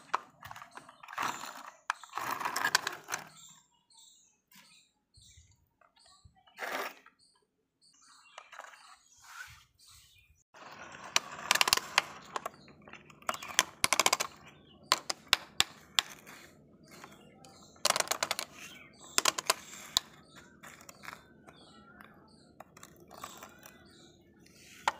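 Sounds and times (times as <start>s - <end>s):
plastic toy excavator clicking: 0.0s - 3.4s, 10.6s - 24.9s.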